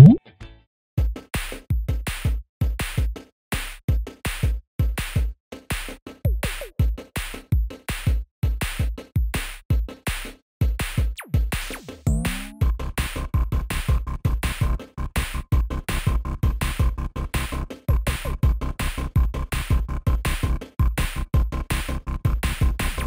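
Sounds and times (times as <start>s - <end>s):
electronic drum-machine beat: 0.0s - 0.2s, 6.3s - 10.0s, 11.0s - 14.8s, 22.2s - 23.0s.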